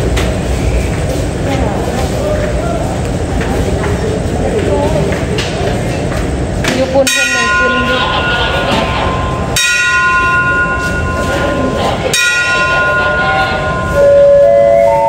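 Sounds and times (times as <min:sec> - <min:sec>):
departure bell ringing: 0:06.8 - 0:15.0
loud steady horn tone: 0:07.4 - 0:15.0.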